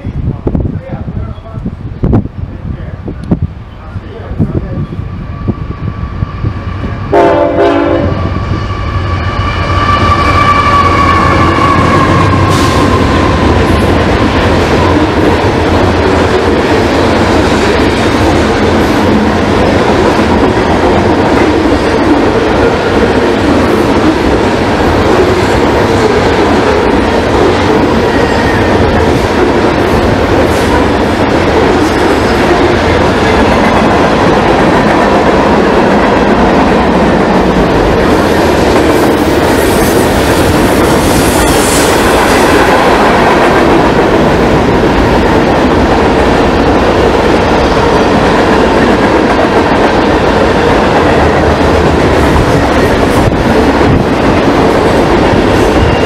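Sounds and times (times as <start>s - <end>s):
train wheels rumbling on rails: 0.0s - 56.0s
high wheel squeal: 8.1s - 13.4s.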